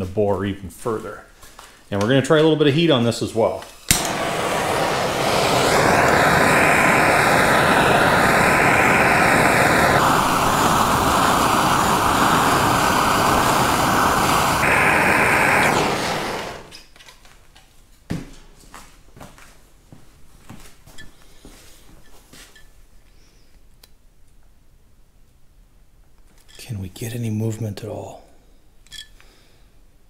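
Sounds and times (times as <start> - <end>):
gas torch hissing: 3.9 - 16.8.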